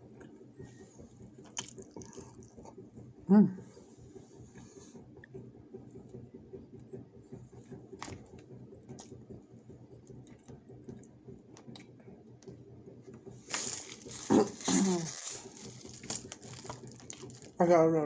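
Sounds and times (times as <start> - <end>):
plastic wrapping crinkling: 13.5 - 17.6.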